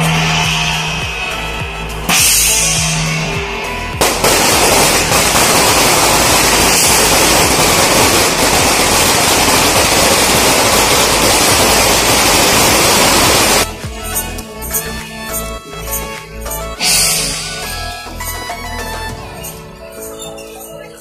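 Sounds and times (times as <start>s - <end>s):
firecrackers crackling: 3.8s - 13.8s.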